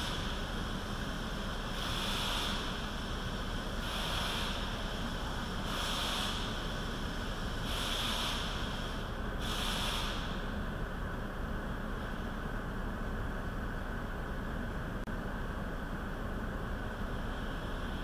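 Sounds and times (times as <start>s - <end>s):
steady hiss: 0.0s - 10.9s
short hissing sprays: 7.6s - 10.4s.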